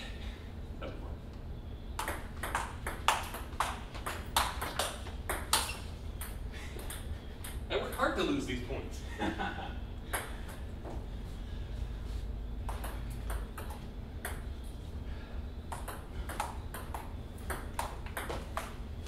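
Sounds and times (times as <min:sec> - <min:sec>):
table tennis ball hits: 0:02.0 - 0:08.0, 0:10.1 - 0:10.4, 0:12.7 - 0:14.5, 0:15.7 - 0:18.8.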